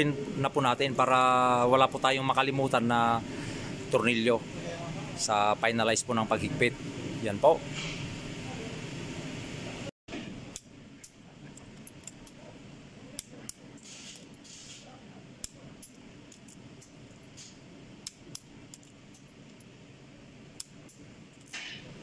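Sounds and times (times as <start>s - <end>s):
steady low hum: 0.0s - 22.0s
torque wrench clicking: 10.5s - 12.4s, 18.0s - 19.7s, 20.6s - 21.7s.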